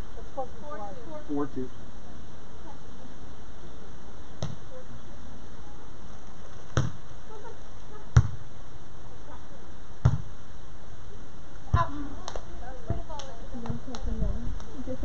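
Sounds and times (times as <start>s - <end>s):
steady background hiss: 0.0s - 15.0s
volleyball smacks: 6.7s - 7.0s, 8.2s - 8.4s, 10.0s - 10.3s.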